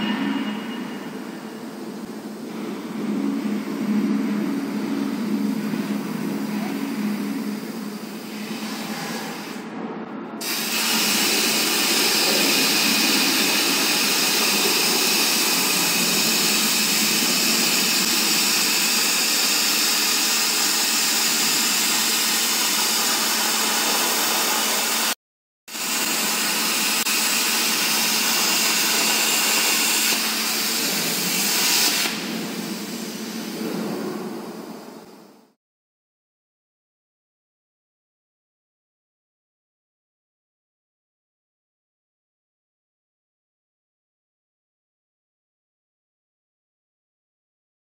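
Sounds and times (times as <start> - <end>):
machine hum: 0.0 - 35.6
plasma torch hissing: 10.4 - 34.9.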